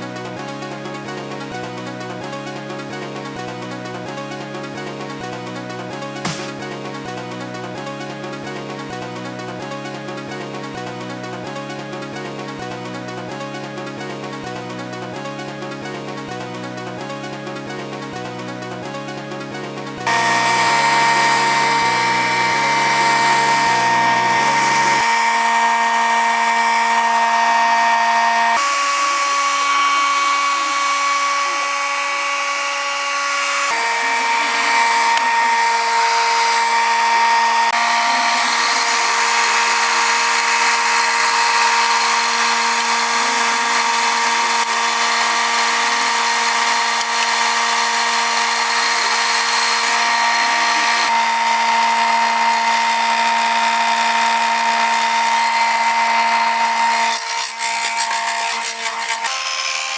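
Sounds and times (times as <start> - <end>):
sustained synth chords: 0.0 - 53.0
stepping bass line: 5.2 - 8.0.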